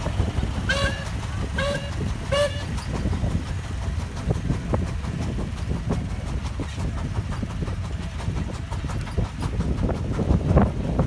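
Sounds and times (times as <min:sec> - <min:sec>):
engine clanks and knocks: 0:00.0 - 0:11.0
steam traction engine rumbling: 0:00.0 - 0:11.0.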